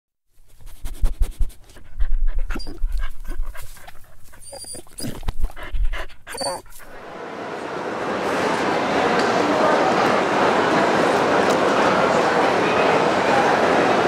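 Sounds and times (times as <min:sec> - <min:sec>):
dog panting and snuffling: 0:00.4 - 0:07.1
crowd hubbub in large hall: 0:06.4 - 0:14.0.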